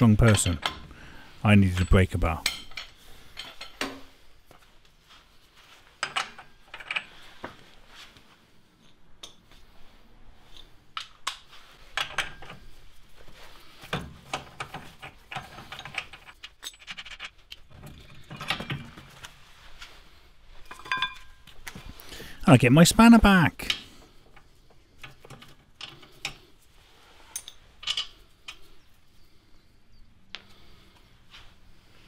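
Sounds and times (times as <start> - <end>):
metallic clinks of tools: 20.7 - 21.4, 27.3 - 28.6.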